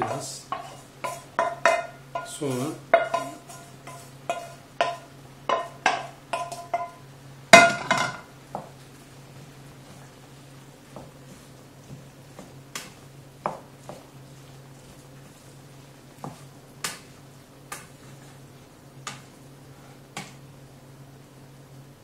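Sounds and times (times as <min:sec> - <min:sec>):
spoon stirring food in a pan: 0:00.0 - 0:19.4
low steady hum: 0:00.0 - 0:22.0
spoon knocking against pan: 0:00.5 - 0:02.3, 0:02.9 - 0:07.0.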